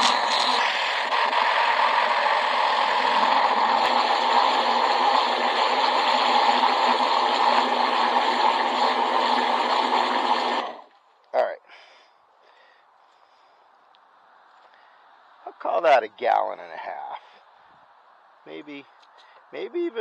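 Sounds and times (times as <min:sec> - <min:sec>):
water jet splashing into bucket: 0:00.0 - 0:10.9
pressure washer pump drone: 0:00.0 - 0:11.0.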